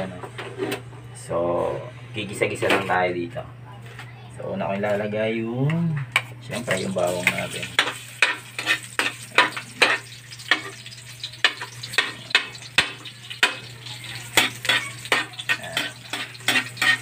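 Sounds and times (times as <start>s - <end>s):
garlic sizzling in oil: 6.6s - 17.0s
spatula scraping and tapping a wok: 7.2s - 17.0s.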